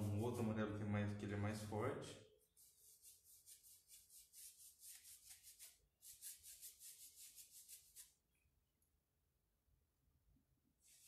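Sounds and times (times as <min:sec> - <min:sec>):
paintbrush strokes on wood: 0:00.0 - 0:00.6, 0:02.5 - 0:08.2.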